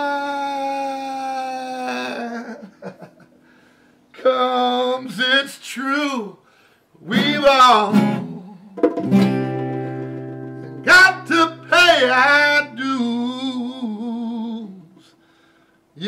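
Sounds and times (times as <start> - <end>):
man singing: 0.0 - 3.2, 4.2 - 6.4, 7.0 - 8.9, 10.8 - 15.1
acoustic guitar chord: 7.3 - 12.2.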